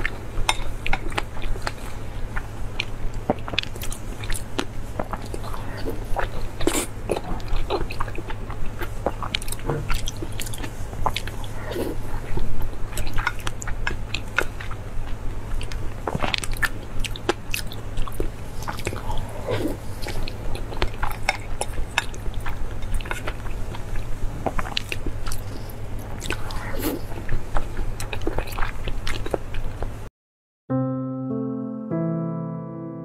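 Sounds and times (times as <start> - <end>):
mouth clicks and smacks chewing: 0.0 - 19.2, 20.0 - 30.0
steady low hum: 0.0 - 30.1.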